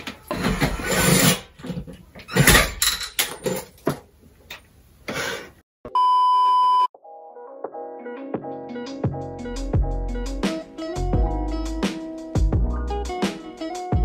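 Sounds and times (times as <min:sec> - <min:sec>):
bleep tone: 0:05.9 - 0:06.9.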